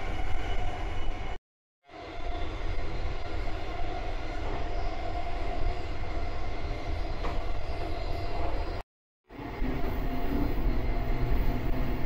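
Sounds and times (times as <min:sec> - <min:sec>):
electric train hum: 0:00.0 - 0:12.0
train wheels rumbling on rail: 0:09.4 - 0:12.0.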